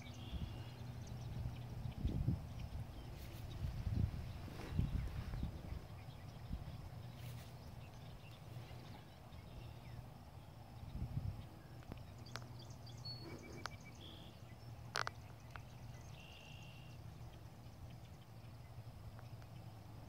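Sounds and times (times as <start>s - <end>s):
low steady rumble: 0.0s - 20.0s
dog rustling in grass: 3.1s - 5.9s.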